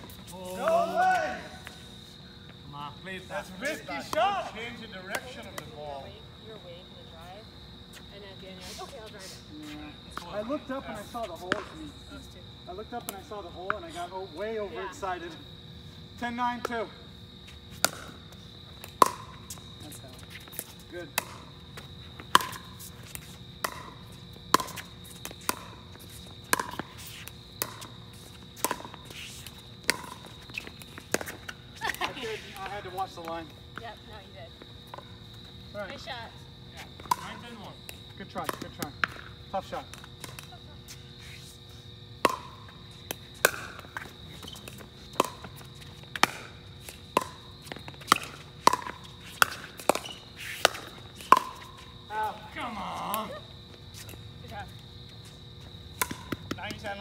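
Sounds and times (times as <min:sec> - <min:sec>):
paddles hitting plastic ball: 0:42.2 - 0:45.5, 0:46.1 - 0:51.6.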